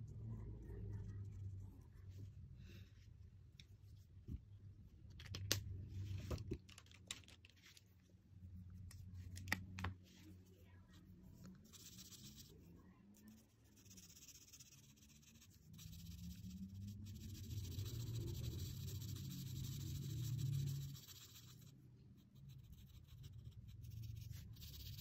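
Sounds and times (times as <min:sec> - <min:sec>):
marker scratching on paper: 0:11.6 - 0:12.6, 0:13.2 - 0:25.0.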